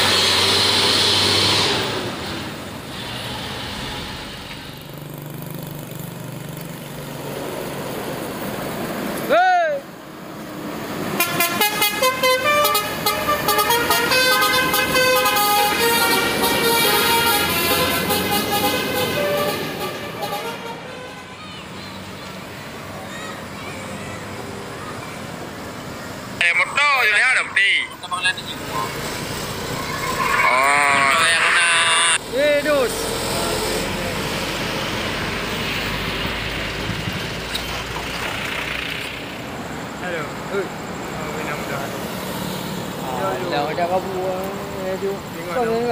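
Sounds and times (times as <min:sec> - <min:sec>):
bus diesel engine rumbling: 0:00.0 - 0:45.9
road noise: 0:00.0 - 0:45.9
multi-tone bus horn melody: 0:11.1 - 0:21.4.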